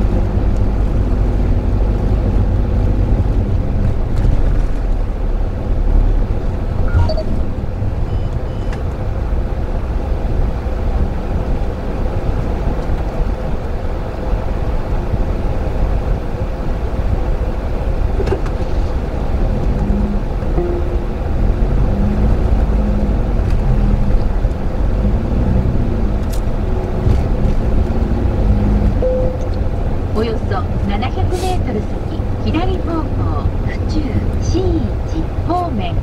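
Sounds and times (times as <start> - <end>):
engine and road rumble: 0.0 - 36.0
faint short beeps: 6.9 - 7.4, 29.0 - 29.6.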